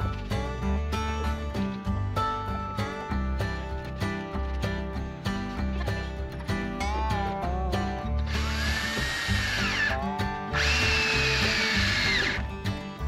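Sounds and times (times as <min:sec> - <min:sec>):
background music with a beat: 0:00.0 - 0:13.0
cordless drill boring into wood: 0:08.3 - 0:12.5.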